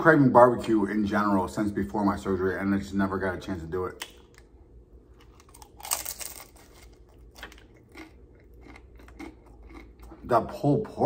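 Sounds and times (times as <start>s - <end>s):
crunchy tortilla chip bite: 5.2s - 10.3s
chewing with crunches: 5.2s - 10.6s.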